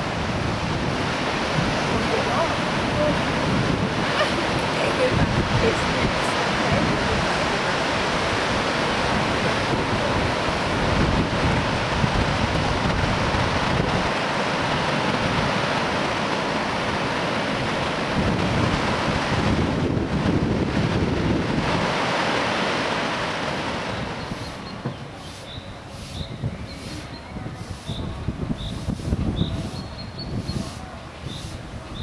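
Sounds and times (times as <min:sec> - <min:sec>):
surf breaking on shore: 0:00.0 - 0:32.0
wind buffeting microphone: 0:00.0 - 0:32.0.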